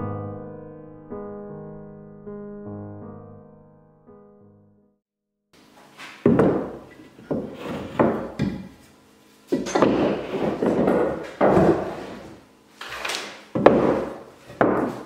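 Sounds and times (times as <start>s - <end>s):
boards sliding and scraping: 5.8s - 15.0s
wood-on-wood knocks: 6.2s - 8.8s, 9.5s - 12.1s, 13.5s - 15.0s.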